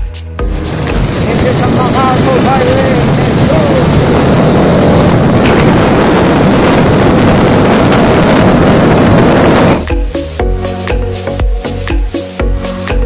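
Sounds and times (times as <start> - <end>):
wind rushing over microphone: 0.4 - 10.2.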